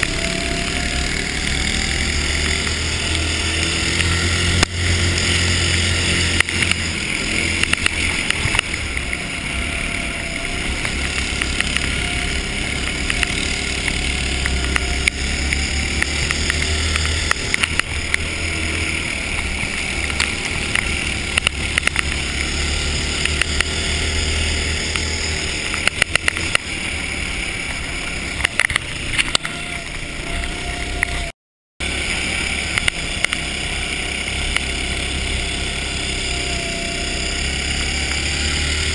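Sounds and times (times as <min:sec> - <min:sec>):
go-kart engine drone: 0:00.0 - 0:38.9
scattered clicks and knocks: 0:02.4 - 0:09.2, 0:10.8 - 0:12.1, 0:12.8 - 0:18.3, 0:19.3 - 0:22.3, 0:23.2 - 0:23.7, 0:24.9 - 0:26.7, 0:28.4 - 0:29.6, 0:32.7 - 0:33.5.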